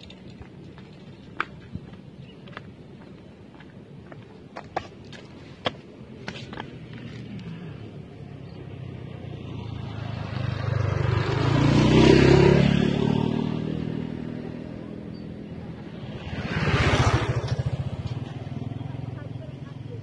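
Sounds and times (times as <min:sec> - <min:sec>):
vehicles passing on road: 0:00.0 - 0:20.0
small motorcycle passing: 0:08.6 - 0:20.0.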